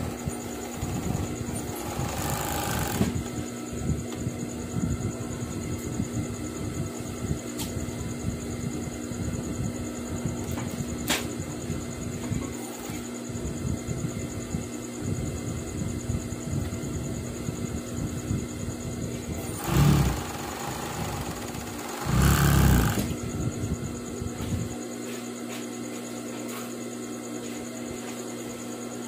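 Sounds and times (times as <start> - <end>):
sewing machine motor humming: 0.6 - 3.3, 19.4 - 23.2
sewing machine stitching: 0.7 - 3.3, 19.4 - 23.1.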